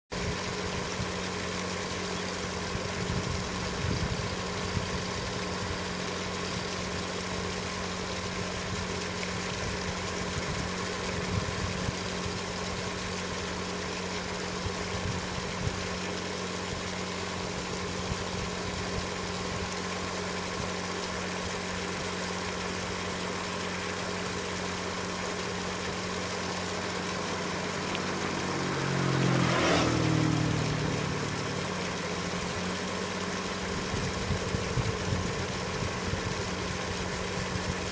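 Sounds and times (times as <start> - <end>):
low mechanical hum: 0.1 - 37.9
vehicle passing: 28.2 - 31.1.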